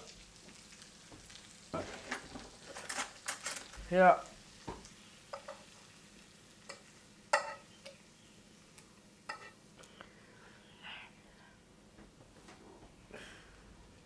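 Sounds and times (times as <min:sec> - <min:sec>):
fork scraping a frying pan: 0:09.3 - 0:09.6.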